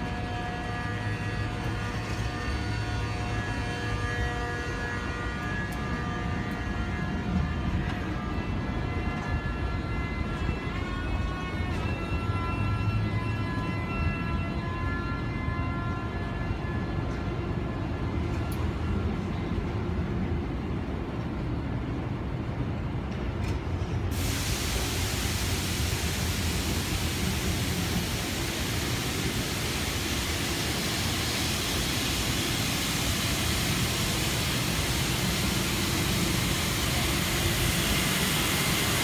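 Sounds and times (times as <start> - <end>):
train wheels rumbling on rail: 0.0 - 39.0
steady hiss: 24.1 - 39.0.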